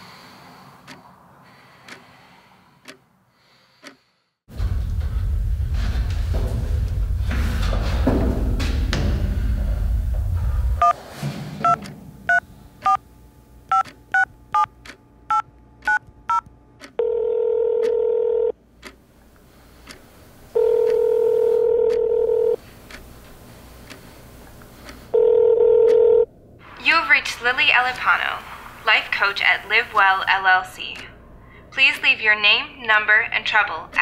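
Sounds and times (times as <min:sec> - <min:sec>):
low rumble: 0:04.5 - 0:10.9
phone keypad dialing tones: 0:13.7 - 0:14.7, 0:15.3 - 0:18.5, 0:20.6 - 0:22.6, 0:25.2 - 0:26.3
phone ringback tones: 0:17.0 - 0:18.5, 0:20.6 - 0:22.6, 0:25.1 - 0:26.3.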